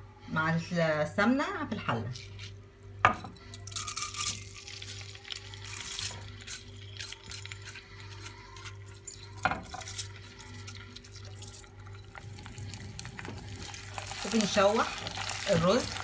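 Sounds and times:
low steady hum: 0.0s - 16.0s
rice sizzling in hot oil: 11.1s - 16.0s.

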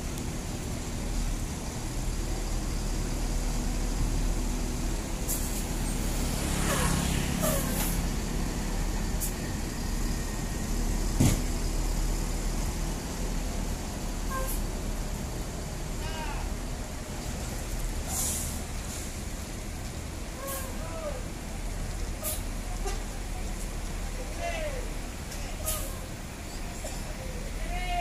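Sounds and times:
diesel bus engine rumbling: 0.0s - 28.0s
short air hisses: 18.0s - 19.1s, 22.2s - 22.5s, 25.6s - 26.0s.

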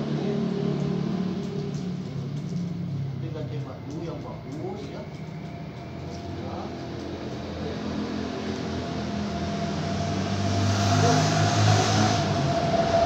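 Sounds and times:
passing vehicles: 0.0s - 13.0s
truck approaching: 4.4s - 13.0s.

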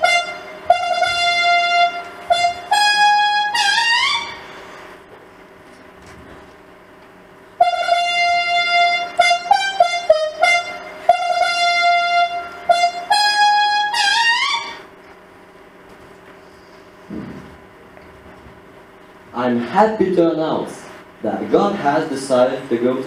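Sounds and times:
trumpet fanfare: 0.0s - 4.5s, 7.6s - 14.9s.

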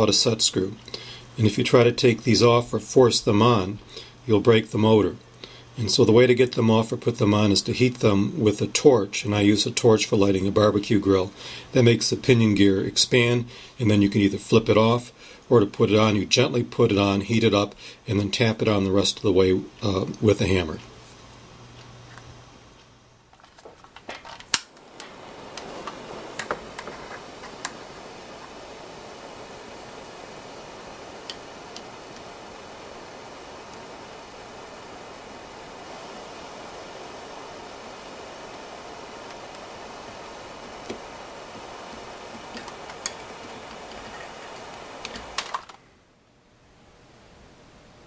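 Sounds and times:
torch igniter clicks: 24.4s - 28.5s, 31.1s - 32.6s, 39.2s - 45.8s
torch flame hissing: 24.6s - 45.8s
ticking of heated metal: 39.3s - 45.5s.

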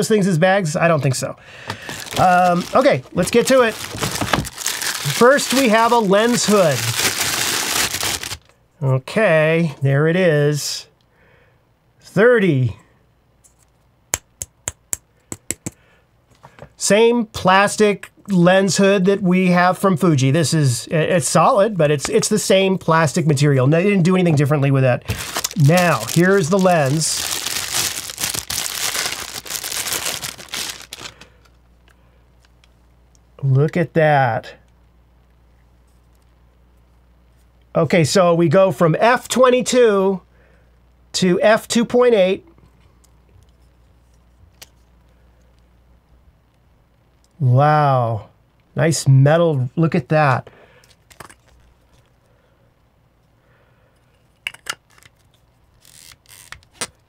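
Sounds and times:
bubble wrap crinkling: 1.8s - 8.5s, 25.0s - 31.5s, 54.9s - 57.0s.

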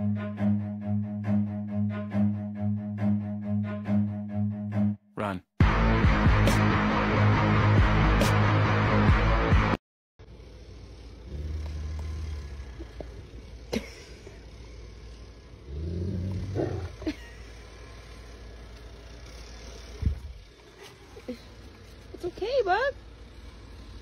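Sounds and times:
low rumbling growls: 10.3s - 22.1s.

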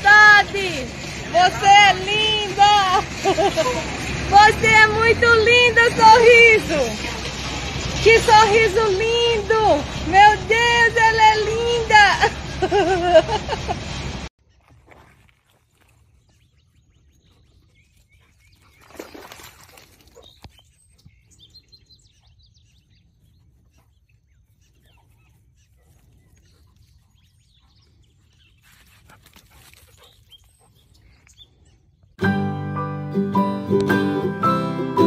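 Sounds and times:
banjo music: 32.2s - 35.0s.

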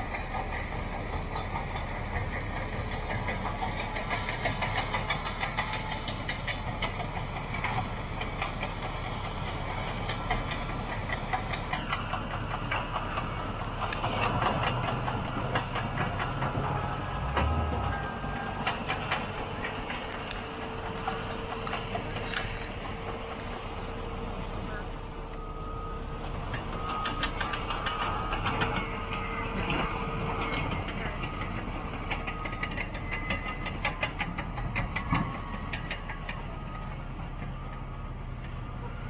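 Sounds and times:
tracks clattering through brush: 0.0s - 25.5s
diesel engine running: 0.0s - 39.0s.

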